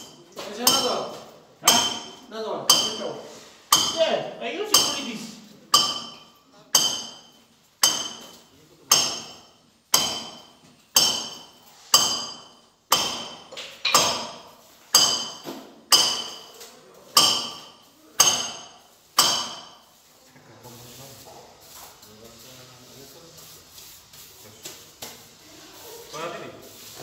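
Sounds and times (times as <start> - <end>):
hammer striking metal: 0.0 - 16.6, 17.2 - 19.9.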